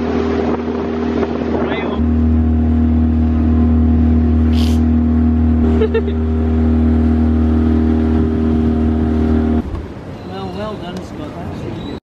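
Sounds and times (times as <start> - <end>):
motorboat engine drone: 0.0 - 10.2
short hiss: 4.5 - 4.8.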